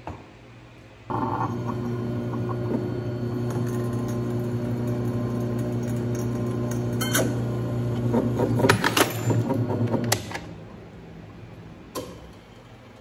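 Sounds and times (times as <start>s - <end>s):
drill press motor hum: 1.1s - 10.3s.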